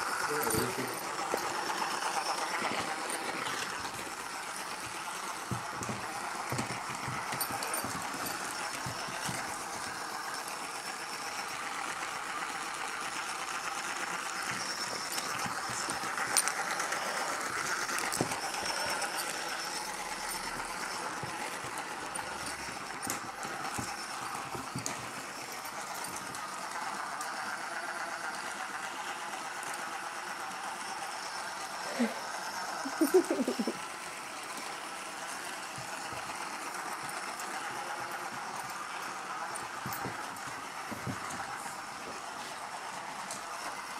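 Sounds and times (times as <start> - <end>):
dog toy giggling noise: 32.8 - 33.9.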